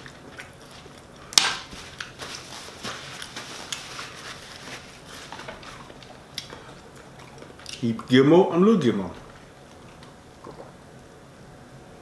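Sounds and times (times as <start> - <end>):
paper napkin crinkling: 0.0 - 6.7.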